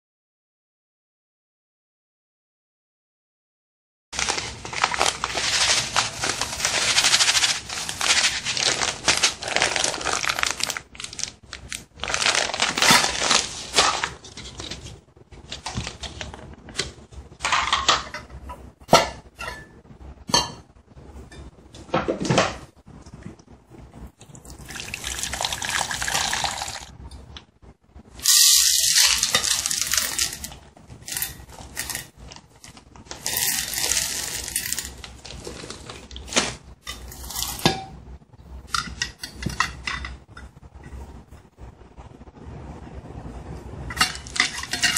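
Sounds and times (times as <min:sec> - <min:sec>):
chocolate chips pouring into bowl: 0:04.2 - 0:11.3, 0:24.7 - 0:26.9, 0:28.2 - 0:32.1, 0:33.1 - 0:35.6
plastic bag rustling: 0:04.2 - 0:16.8, 0:28.2 - 0:37.7, 0:44.0 - 0:44.9
water running: 0:24.3 - 0:26.9
steel bowls clinking: 0:33.2 - 0:35.0, 0:43.9 - 0:44.9.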